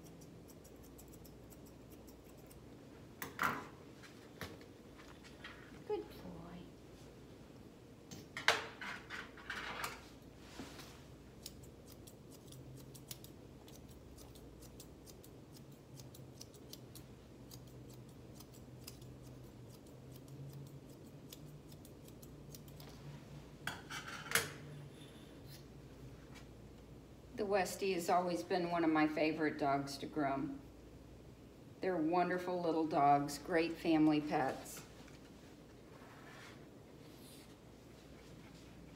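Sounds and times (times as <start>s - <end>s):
grooming shears snipping: 11.4s - 22.9s.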